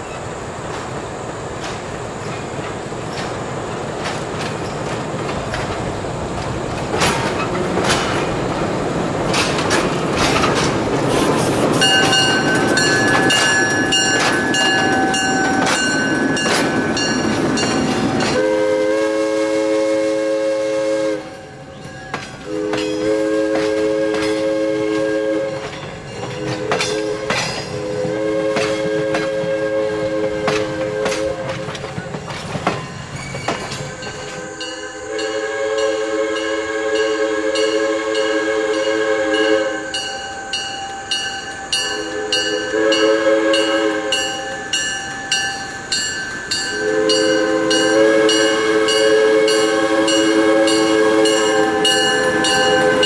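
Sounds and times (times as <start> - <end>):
wheels clicking over rail joints: 0.0 - 18.6, 21.2 - 35.0
locomotive wheel rumble: 0.0 - 19.5, 21.6 - 34.8
locomotive air horn: 18.3 - 21.6, 22.4 - 25.7, 26.4 - 31.8, 34.4 - 40.2, 41.6 - 44.8, 46.7 - 53.0.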